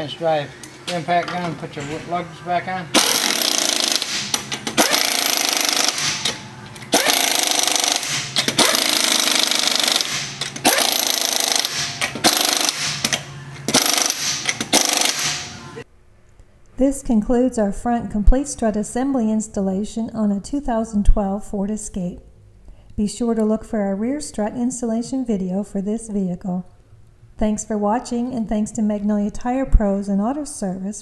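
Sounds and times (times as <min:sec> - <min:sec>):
impact gun hammering: 0:03.0 - 0:15.6.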